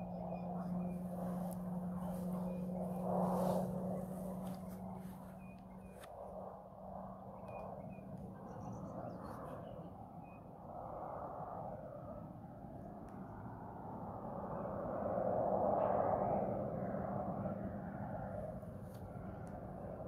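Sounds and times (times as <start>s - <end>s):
distant aircraft droning: 0.0s - 20.0s
faint bird chirps: 7.3s - 10.5s.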